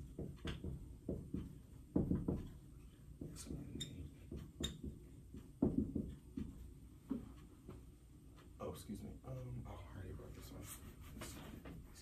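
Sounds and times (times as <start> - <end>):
marker writing on a whiteboard: 0.0 - 8.6, 10.3 - 12.0.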